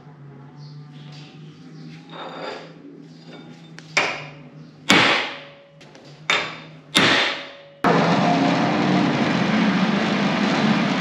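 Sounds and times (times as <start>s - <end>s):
loud mechanical noise: 1.0s - 11.0s
hammer striking metal: 4.0s - 5.7s, 6.3s - 7.9s.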